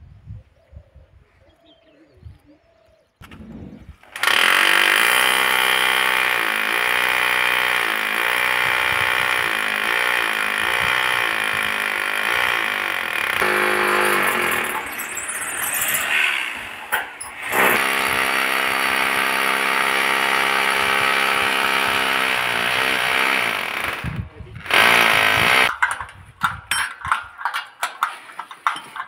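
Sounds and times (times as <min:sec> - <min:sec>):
electric drill boring into concrete: 0:04.1 - 0:25.9.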